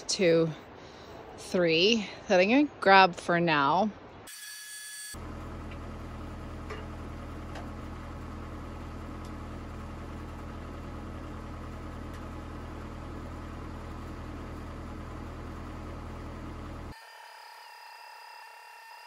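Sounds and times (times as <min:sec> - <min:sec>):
diesel engine idling: 0:05.2 - 0:17.0.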